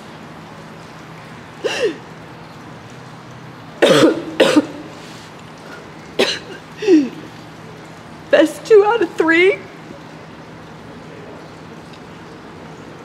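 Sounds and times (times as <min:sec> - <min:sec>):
woman coughing and choking: 0:03.8 - 0:04.9, 0:06.2 - 0:07.2.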